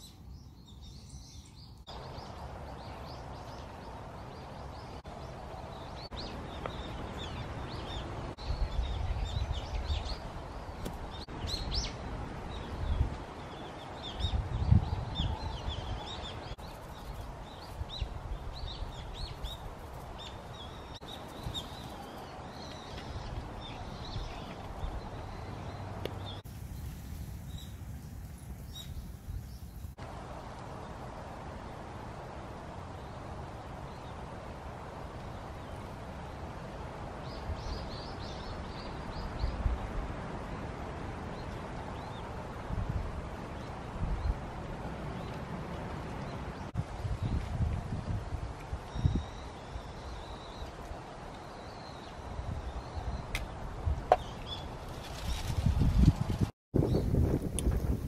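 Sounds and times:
small birds chirping: 0.0 - 30.0
outdoor background noise: 0.0 - 58.0.

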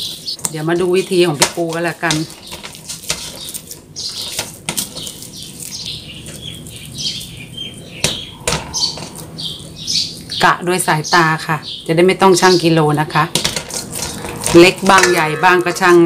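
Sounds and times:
hands tearing bread dough: 1.7 - 10.3.

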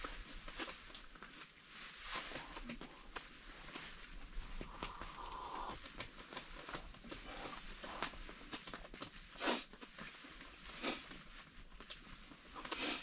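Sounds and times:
light clicks and rustles: 0.0 - 13.0
person sipping from a mug: 4.6 - 5.8
short breathy puff: 9.4 - 9.7, 10.8 - 11.1.

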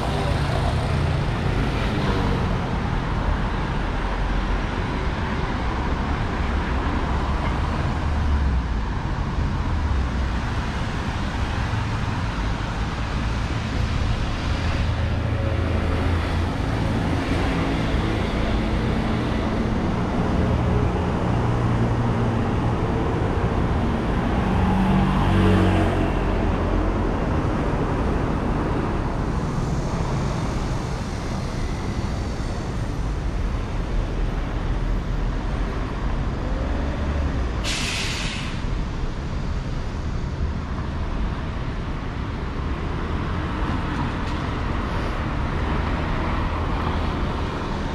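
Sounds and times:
cars running steadily: 0.0 - 47.9.

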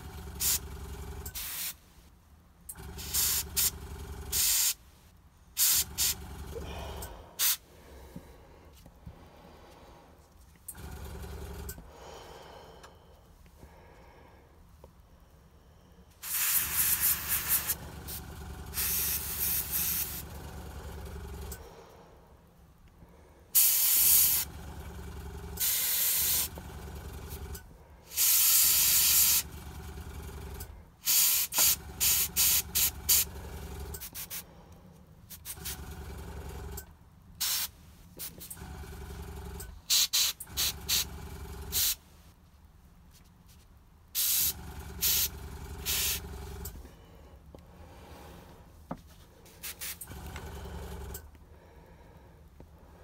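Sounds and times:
compressor motor hum: 0.0 - 1.8, 2.6 - 4.8, 5.5 - 14.4, 16.2 - 34.6, 35.4 - 37.6, 38.2 - 42.0, 44.2 - 53.0
airbrush spraying hiss: 1.3 - 1.8, 4.3 - 4.8, 7.4 - 7.6, 16.2 - 18.2, 18.8 - 20.2, 23.6 - 24.4, 25.6 - 26.5, 28.1 - 29.4, 31.0 - 33.2, 37.4 - 38.4, 39.9 - 41.0, 41.7 - 42.0, 44.2 - 46.2, 49.6 - 50.0.

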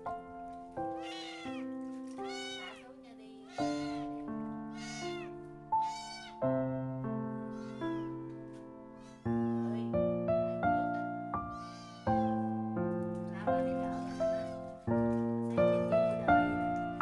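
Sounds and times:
background music: 0.0 - 17.0
kitten meowing: 0.9 - 6.4, 7.4 - 8.3, 9.0 - 9.8, 10.8 - 12.5, 13.9 - 14.7.

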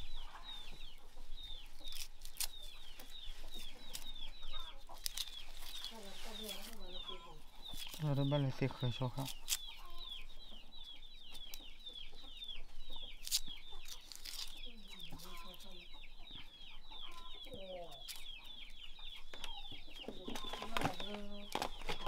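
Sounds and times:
chickens clucking: 0.0 - 22.0.

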